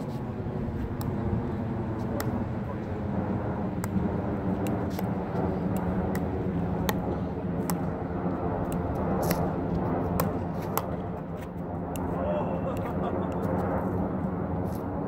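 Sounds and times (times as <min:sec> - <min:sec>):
steady low rumble: 0:00.0 - 0:15.0
paddles tapping pickleball: 0:02.0 - 0:02.4, 0:03.8 - 0:04.0, 0:04.6 - 0:07.9, 0:10.1 - 0:12.1
ball bouncing on hard court: 0:10.1 - 0:11.0.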